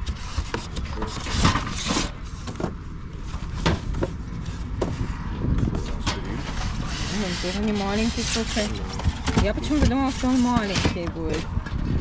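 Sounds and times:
cardboard rubbing: 0.0 - 5.0, 6.5 - 11.4
foam scraping and creaking: 0.0 - 12.0
paper rustling: 6.5 - 9.2.

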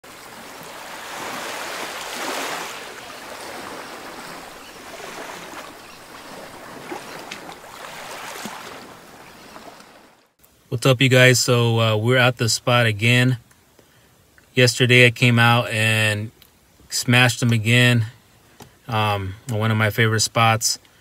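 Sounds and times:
ocean surf rushing: 0.0 - 10.2.

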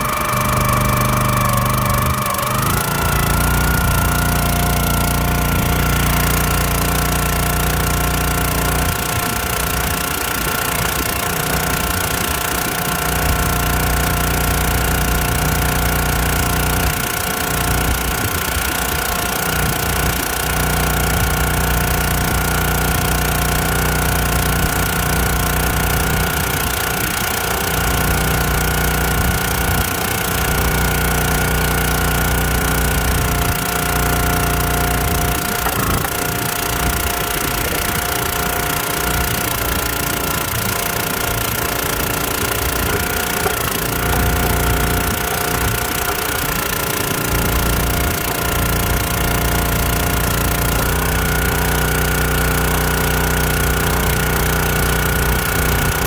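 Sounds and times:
high whine: 0.0 - 12.4
small gasoline engine running: 0.0 - 56.0.

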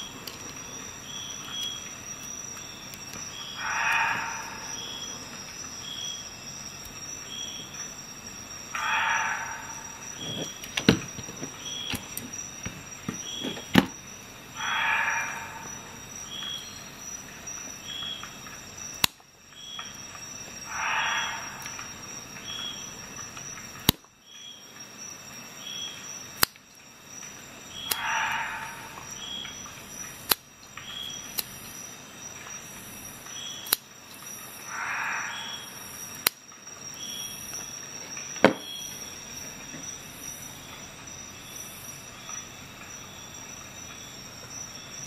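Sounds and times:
scissors snipping cord: 26.4 - 26.6, 31.3 - 31.6, 33.6 - 33.9
sharp clicks: 33.6 - 34.2.

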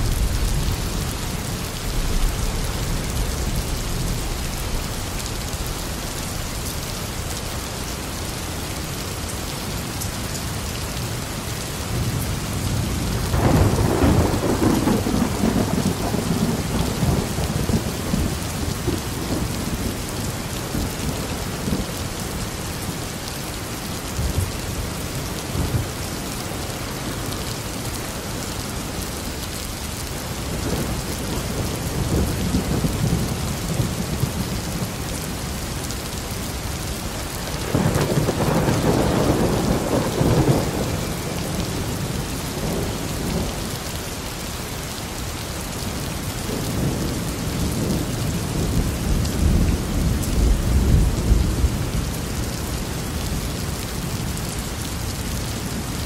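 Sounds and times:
rolling thunder: 0.0 - 6.1, 13.1 - 20.0, 37.5 - 43.5
heavy rain: 0.0 - 56.0.

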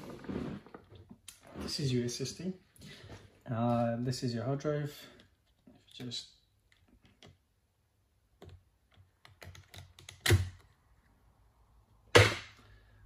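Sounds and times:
metal shield snapping off: 12.2 - 12.5.

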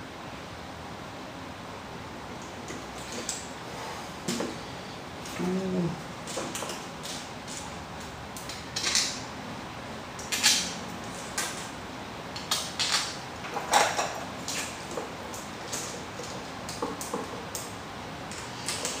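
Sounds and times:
small parts clicking and clinking: 8.4 - 9.2, 10.2 - 11.7, 12.4 - 17.7.

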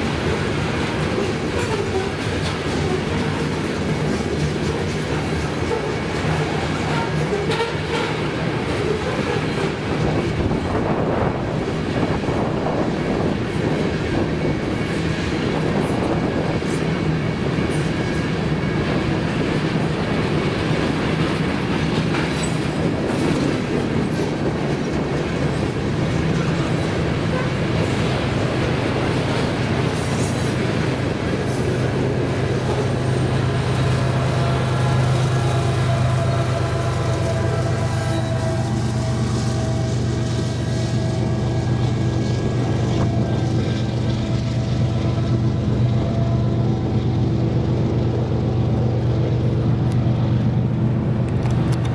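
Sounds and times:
small clicks of rail cars: 0.0 - 38.7, 49.5 - 51.9
low locomotive engine hum: 0.0 - 51.9
train wheels rumbling on rail: 0.0 - 51.9.

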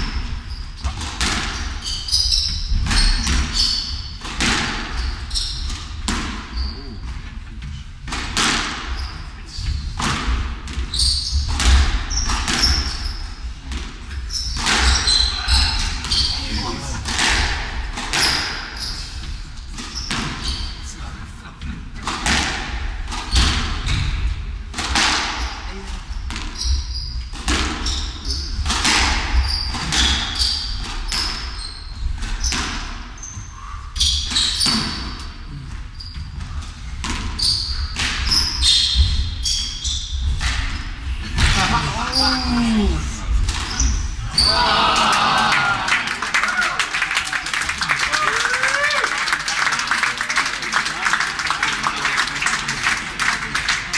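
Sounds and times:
shoes squeaking on wooden floor: 0.0 - 7.9, 8.8 - 17.0, 29.3 - 43.0
squash ball hits off walls: 4.2 - 5.0, 8.1 - 8.9, 17.0 - 18.8, 22.1 - 25.6, 27.3 - 27.9, 28.6 - 31.5.

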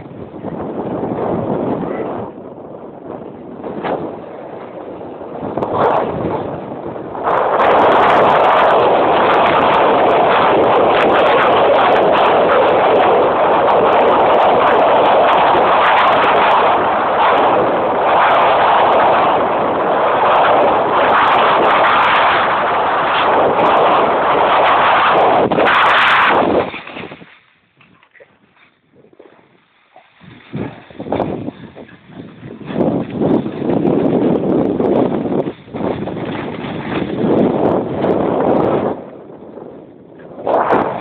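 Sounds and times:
wind buffeting microphone: 0.0 - 41.0.

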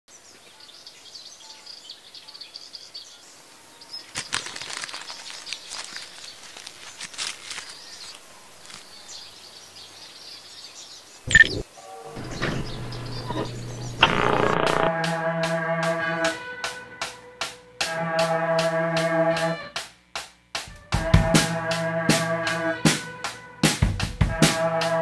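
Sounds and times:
dry leaves and twigs crackling: 3.9 - 9.6
faint high chirping: 11.0 - 14.9
low electrical hum: 12.2 - 14.9.

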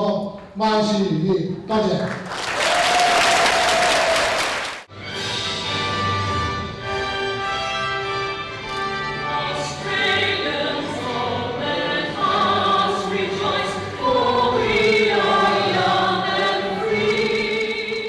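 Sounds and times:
musical accompaniment: 4.9 - 18.0
choir singing an anthem: 9.0 - 18.0.

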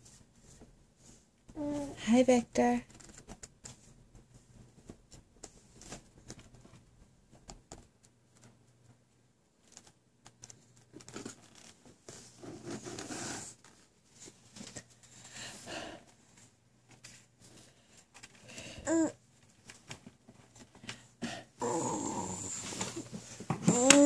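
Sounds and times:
toys rustling in a bin: 22.4 - 24.0.

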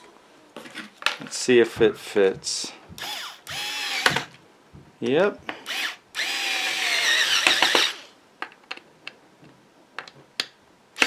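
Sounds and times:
power drill driving screw into wood: 3.0 - 4.4, 5.6 - 8.1.

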